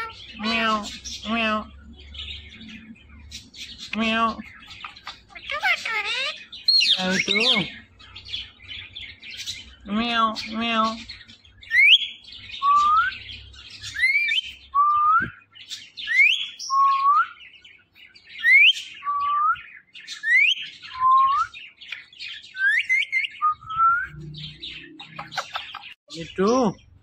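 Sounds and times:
parakeets whistling: 0.0s - 11.0s, 11.6s - 17.5s, 18.4s - 26.0s
scratchy chattering chirps: 4.5s - 7.7s, 25.0s - 26.0s.

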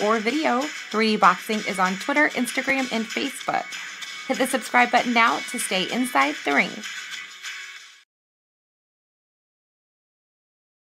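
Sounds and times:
outro music: 0.0s - 8.0s.

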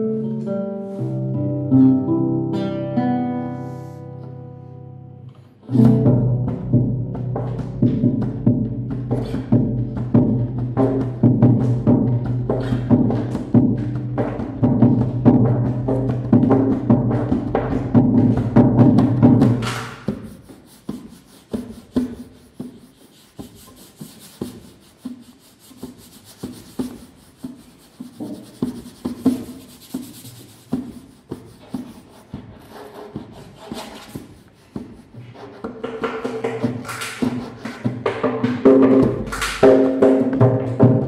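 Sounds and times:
nylon-string guitar: 0.0s - 20.0s
hand drum: 5.5s - 41.0s.

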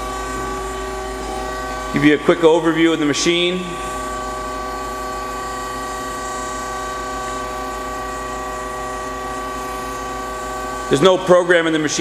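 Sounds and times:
lathe humming and whining: 0.0s - 12.0s.

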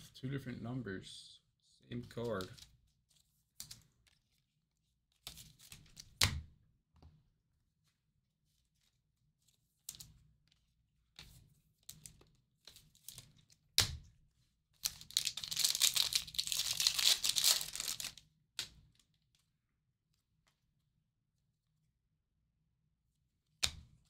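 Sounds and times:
card pack wrapper rustling: 14.8s - 18.2s
wrapper crinkling and tearing: 14.8s - 18.2s.

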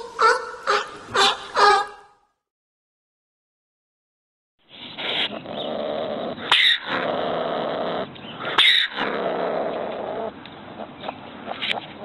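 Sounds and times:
animal harsh calls: 0.0s - 2.1s, 4.9s - 12.0s
sharp animal yelp: 6.5s - 7.0s, 8.5s - 9.1s.

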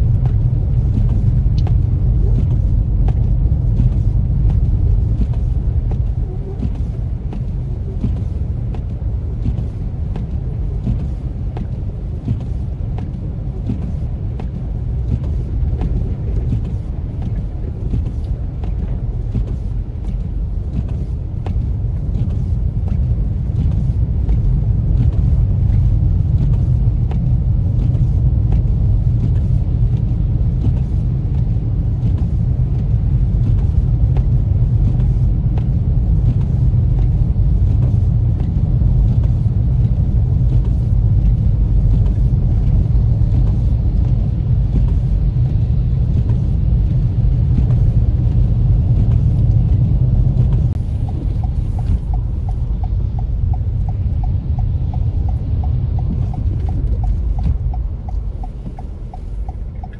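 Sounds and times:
tyre and road noise: 0.0s - 59.9s.

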